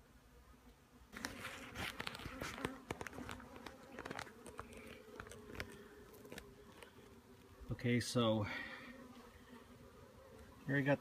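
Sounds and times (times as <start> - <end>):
honeybees buzzing: 0.0 - 11.0.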